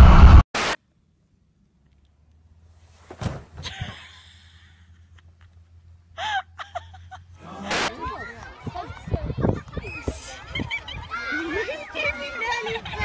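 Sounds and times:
soft thumps in snow: 0:02.9 - 0:03.8.

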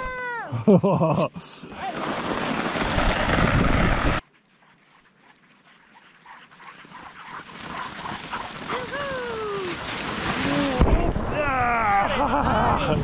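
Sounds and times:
dog sled runners on snow: 0:01.7 - 0:10.8
dog sled team approaching: 0:01.7 - 0:10.9
wind rushing: 0:02.0 - 0:04.2
dogs whining and yipping: 0:04.6 - 0:09.9.

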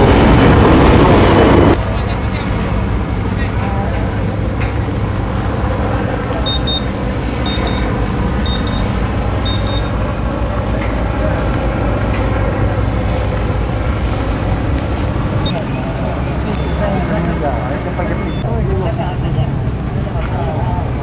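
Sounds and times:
ship engines humming: 0:00.0 - 0:21.0
high electronic double beeps: 0:06.4 - 0:09.9.

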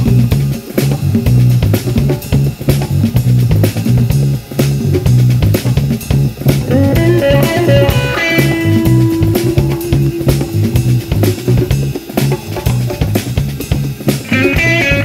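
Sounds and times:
drum kit beat: 0:00.0 - 0:15.0
electric bass riff: 0:00.0 - 0:15.0
electric guitar: 0:04.9 - 0:15.0.

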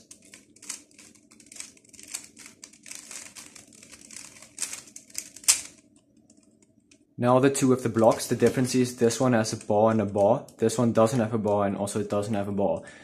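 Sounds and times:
puzzle cube layers clicking: 0:00.0 - 0:06.5.

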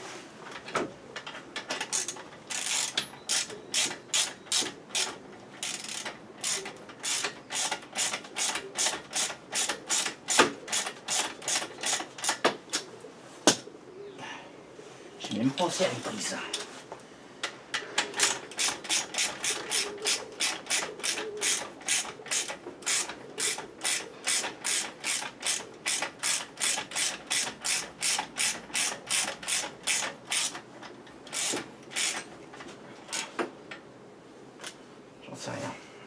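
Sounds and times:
ratchet wrench clicking: 0:01.8 - 0:12.4, 0:18.2 - 0:30.6, 0:31.3 - 0:32.2.

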